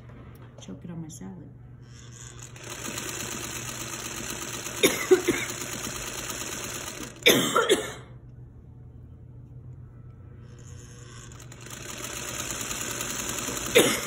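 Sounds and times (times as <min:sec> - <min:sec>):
sewing machine running: 0:01.9 - 0:07.2, 0:10.5 - 0:14.0
woman coughing hard: 0:04.8 - 0:05.7, 0:07.2 - 0:08.1, 0:13.7 - 0:14.0.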